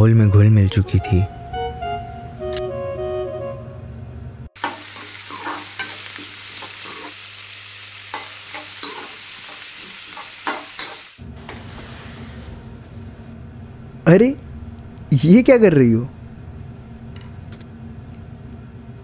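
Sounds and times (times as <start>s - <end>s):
background music: 0.0s - 3.9s
food sizzling in frying pan: 4.6s - 12.4s.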